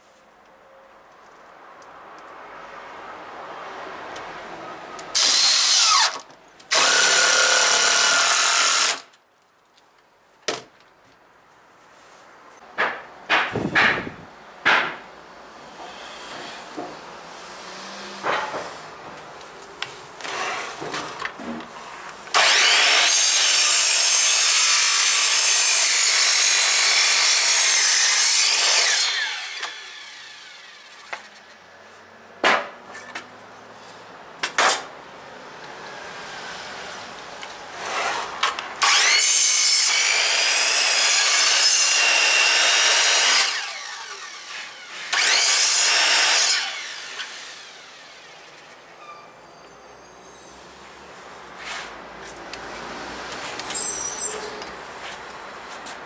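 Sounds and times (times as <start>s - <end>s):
mitre saw cutting wood: 5.1s - 9.1s, 22.3s - 31.4s, 37.8s - 48.5s
sharp knocks: 12.7s - 15.1s.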